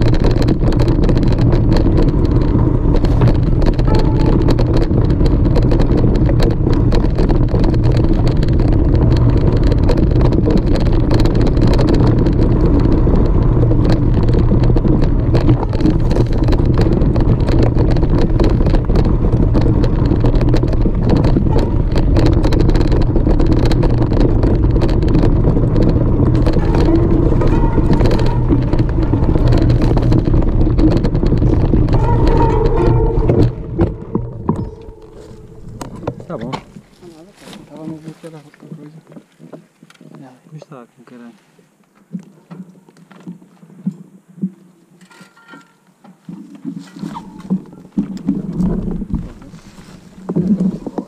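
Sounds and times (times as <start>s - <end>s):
tyres clattering over loose stones: 0.0s - 38.5s
wind rumble on microphone: 0.0s - 40.4s, 46.2s - 51.0s.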